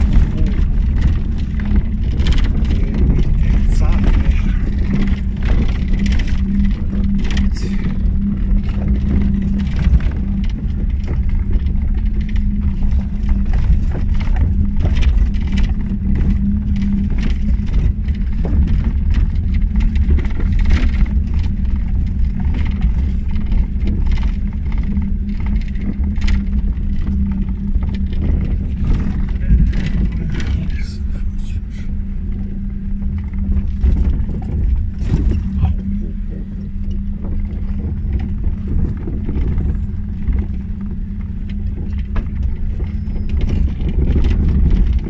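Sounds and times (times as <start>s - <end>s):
knocks and rattles from bumps: 0.0s - 30.9s
car engine and road drone: 0.0s - 45.0s.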